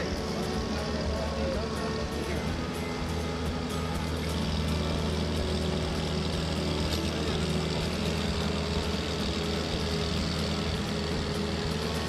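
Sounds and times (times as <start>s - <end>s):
boat diesel engine running: 0.0s - 12.0s.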